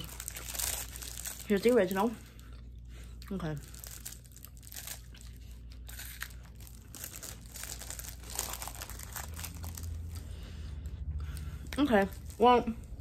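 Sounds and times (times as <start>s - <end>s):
plastic wrapper crinkling: 0.0s - 2.2s, 3.6s - 10.3s.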